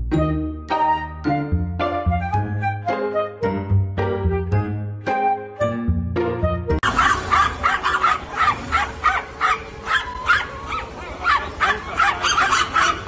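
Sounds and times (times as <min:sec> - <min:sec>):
small dog yapping: 0:06.8 - 0:13.0.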